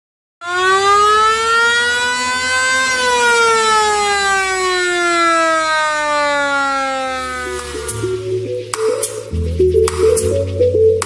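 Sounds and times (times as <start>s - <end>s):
siren wailing: 0.4s - 8.6s.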